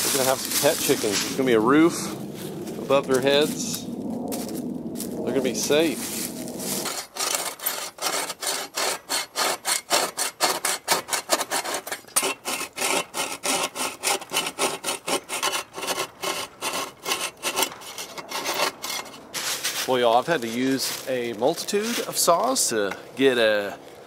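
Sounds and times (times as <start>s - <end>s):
bow saw cutting wood: 6.1s - 20.4s.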